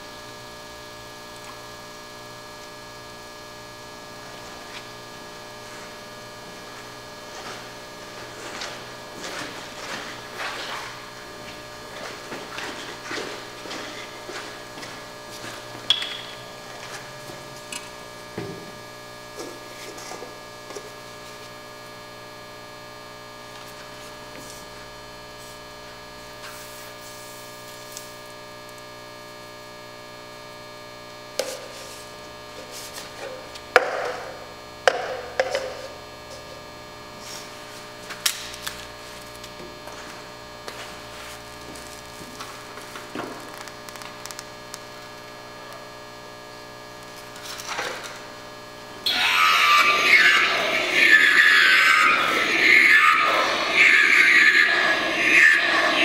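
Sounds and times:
steady electrical hum: 0.0s - 56.0s.

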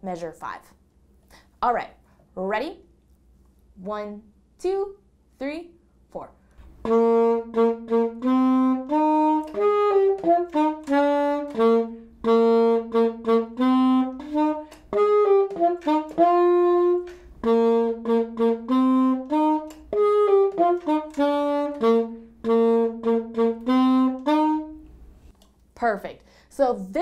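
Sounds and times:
alto saxophone melody: 6.6s - 25.3s.

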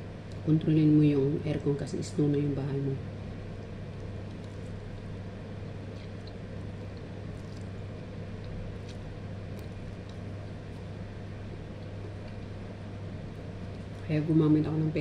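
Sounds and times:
appliance humming: 0.0s - 15.0s
eating noodles with plastic fork: 4.0s - 5.1s, 5.7s - 12.6s.

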